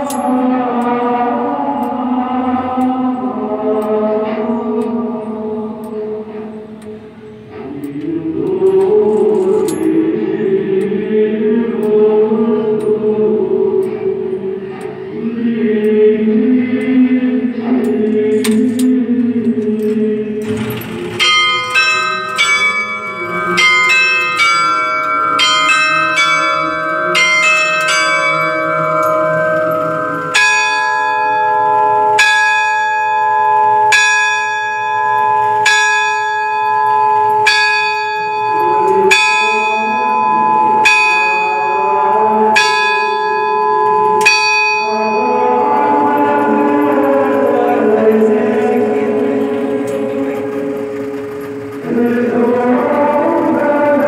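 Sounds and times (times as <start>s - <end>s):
quarter bells ringing: 0.0s - 2.0s, 8.7s - 11.0s, 20.4s - 54.0s
hour bell striking: 0.0s - 18.8s, 20.2s - 54.0s.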